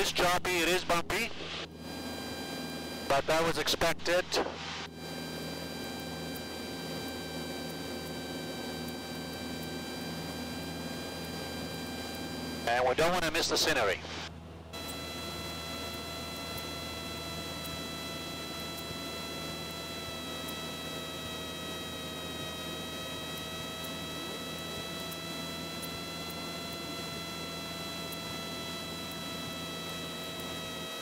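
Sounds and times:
airplane engine and propeller drone: 0:00.0 - 0:31.0
steady high whine: 0:00.0 - 0:31.0.

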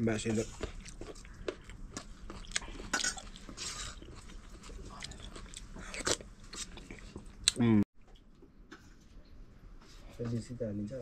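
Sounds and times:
person chewing food: 0:00.2 - 0:08.3.

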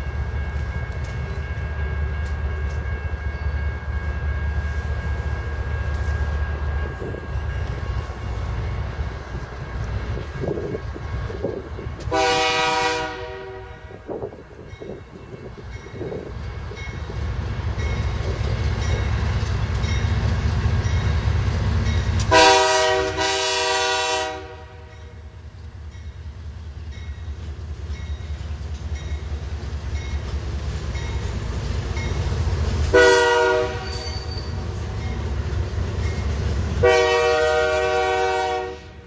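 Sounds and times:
locomotive engines rumbling: 0:00.0 - 0:39.0
train air horn blasts: 0:12.0 - 0:14.2, 0:22.3 - 0:24.9, 0:32.9 - 0:34.4, 0:36.8 - 0:39.0.

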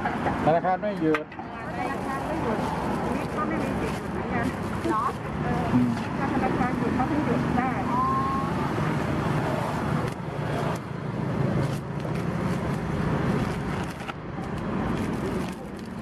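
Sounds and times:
plastic bags rustling: 0:01.8 - 0:05.5, 0:11.6 - 0:16.0.

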